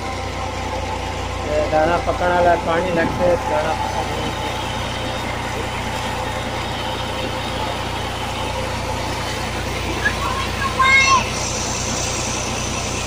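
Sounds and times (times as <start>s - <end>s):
pump drone: 0.0s - 13.0s
water rushing from pipe: 0.0s - 13.0s.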